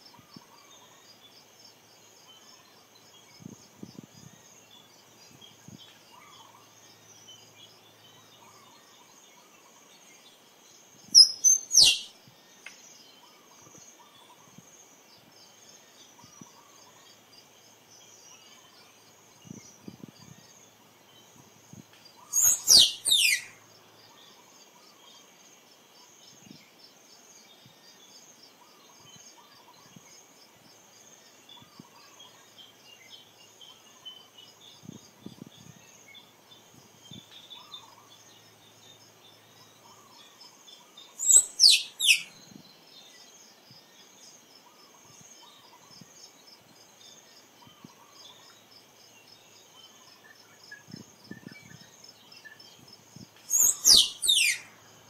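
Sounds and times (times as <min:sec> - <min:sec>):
faint bird chirps: 0:00.0 - 0:30.6, 0:31.2 - 0:55.0
squirrel squeaking: 0:11.2 - 0:12.1, 0:22.3 - 0:23.5, 0:41.2 - 0:42.3, 0:53.5 - 0:54.7.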